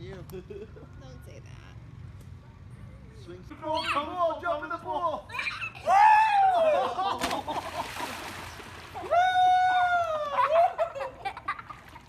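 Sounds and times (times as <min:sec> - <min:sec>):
high shout: 0:05.3 - 0:07.0, 0:09.0 - 0:10.6
water noise: 0:06.6 - 0:12.0
child splashing into pool: 0:07.1 - 0:09.9
long high yell: 0:09.0 - 0:10.6.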